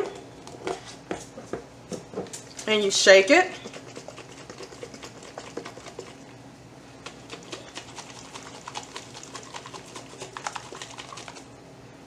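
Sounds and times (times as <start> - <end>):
jar being shaken: 3.5 - 6.2, 7.0 - 11.5.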